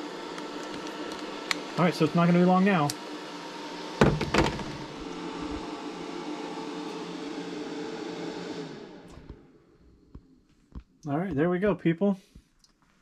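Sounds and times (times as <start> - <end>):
cooling fan whirring with hum: 0.0 - 12.6.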